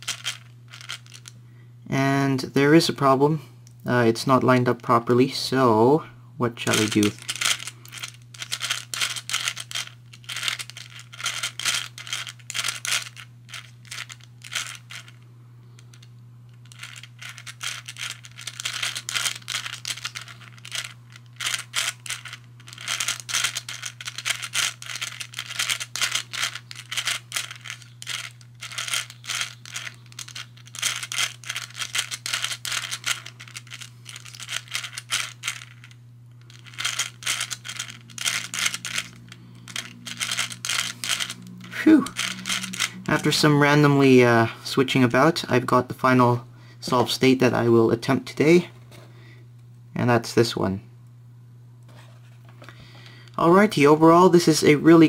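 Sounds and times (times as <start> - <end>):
puzzle balls clicking and rattling: 0.0 - 1.3, 6.6 - 15.2, 15.8 - 43.9.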